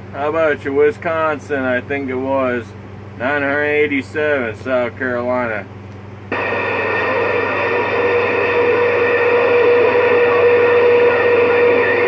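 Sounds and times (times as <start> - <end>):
radio static hiss: 6.3 - 12.0
faint distant radio voice: 6.4 - 12.0.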